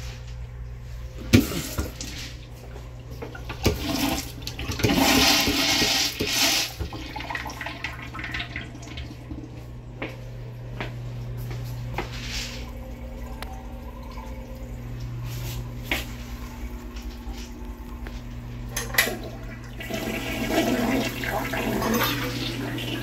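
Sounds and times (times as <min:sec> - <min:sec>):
urinal water rushing: 0:19.1 - 0:23.0.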